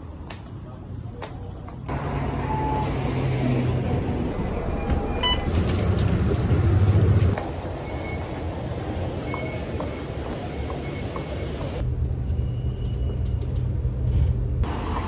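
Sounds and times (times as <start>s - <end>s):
street noise: 0.0s - 15.0s
bus engine running: 1.9s - 7.8s
short beep: 4.8s - 5.5s.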